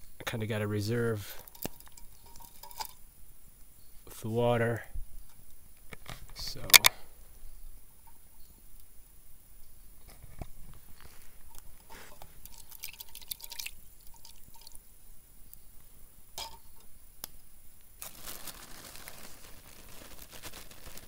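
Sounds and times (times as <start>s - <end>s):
steady rustling hiss: 0.0s - 21.0s
water trickling into a metal cup: 1.4s - 3.0s, 11.4s - 14.9s.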